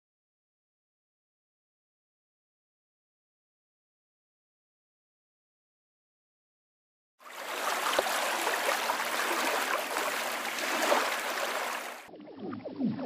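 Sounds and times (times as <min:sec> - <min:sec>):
dense trickling noise: 0:07.2 - 0:13.0.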